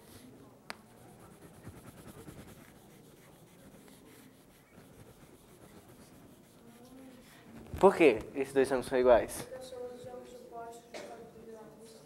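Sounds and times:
chalk scratching on blackboard: 0.8s - 7.4s.

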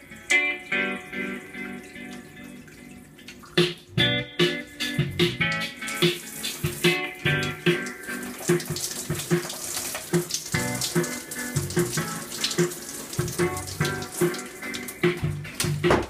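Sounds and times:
music from speaker: 0.0s - 2.5s, 3.6s - 16.0s
shower spray splashing: 4.5s - 15.8s.

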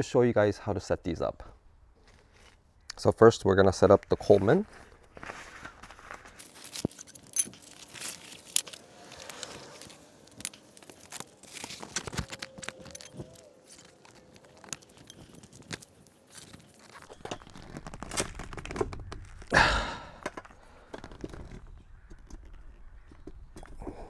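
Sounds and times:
fabric rustling and scraping: 4.2s - 18.8s.

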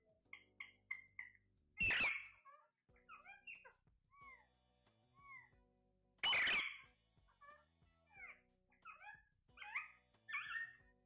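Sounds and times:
parakeets chirping: 0.3s - 4.5s, 5.2s - 5.5s, 6.2s - 11.0s
parakeet squawks: 0.3s - 5.6s, 6.2s - 11.0s
parakeet harsh screech: 1.8s - 4.4s, 6.2s - 10.8s.

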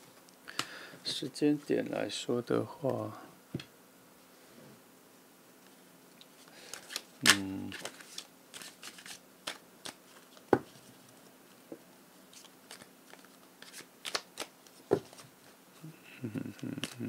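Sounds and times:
cards snapping and tapping: 6.7s - 10.0s, 12.4s - 15.2s.

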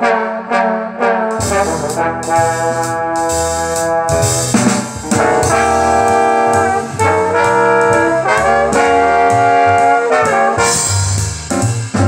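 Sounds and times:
jazz music over speakers: 0.0s - 12.0s.

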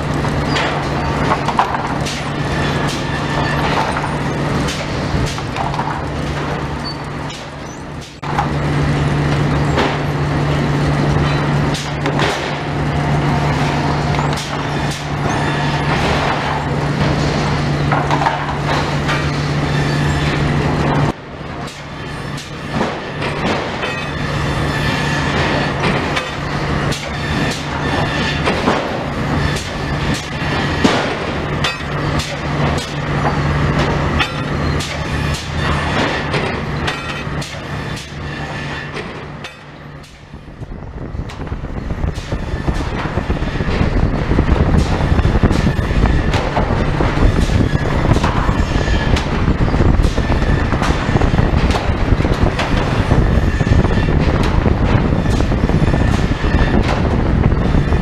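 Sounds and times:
machine hum: 0.0s - 58.0s
boards and chains clattering: 21.7s - 40.2s.

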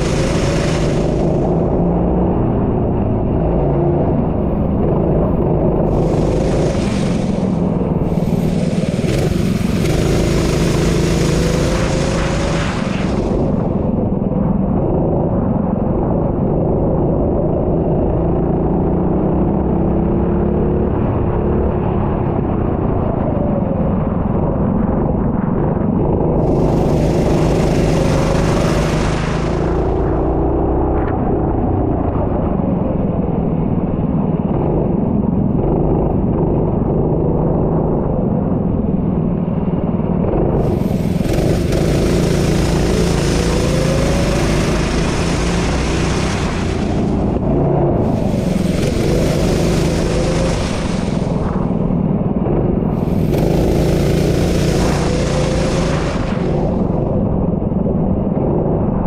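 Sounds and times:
racing engine accelerating: 0.0s - 14.1s, 26.2s - 31.3s, 40.2s - 57.5s
rushing hiss: 6.0s - 13.6s, 40.6s - 47.4s, 48.0s - 51.4s, 53.0s - 56.8s.

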